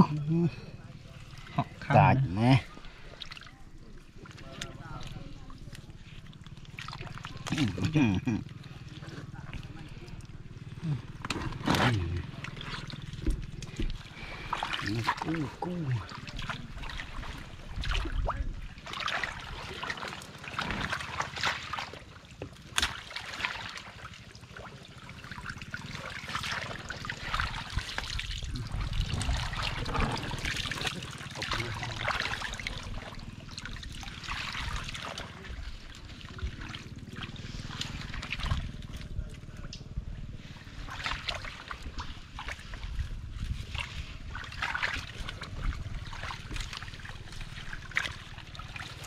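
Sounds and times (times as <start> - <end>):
water sloshing around wading legs: 0.0 - 49.0
stick clicking in mud: 22.7 - 23.0.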